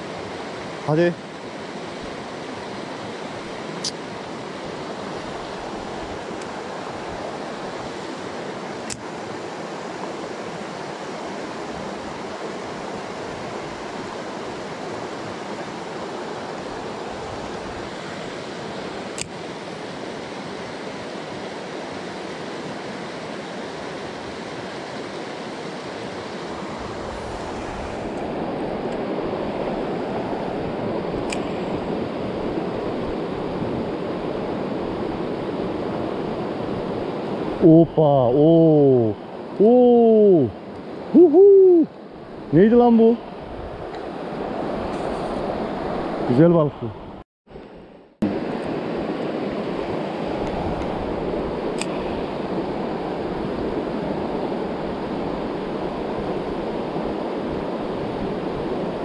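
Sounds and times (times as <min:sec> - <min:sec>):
stream rushing over stones: 0:00.0 - 0:43.1.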